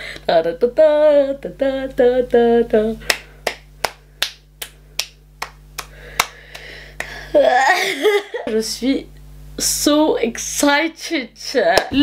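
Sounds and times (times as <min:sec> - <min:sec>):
woman singing: 0:00.2 - 0:03.1
finger snapping: 0:03.1 - 0:07.2.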